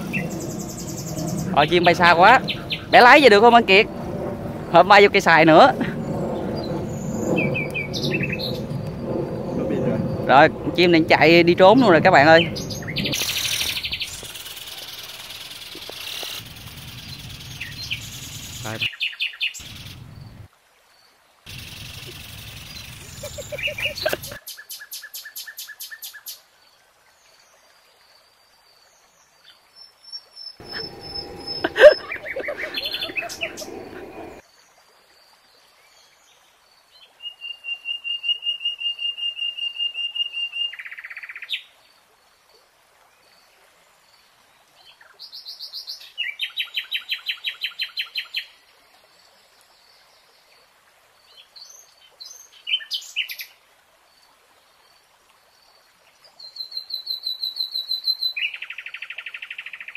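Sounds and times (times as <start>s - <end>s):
bird chirping and trilling: 0.0s - 3.8s, 5.4s - 20.3s, 30.6s - 34.4s
harsh bird call: 30.6s - 34.4s.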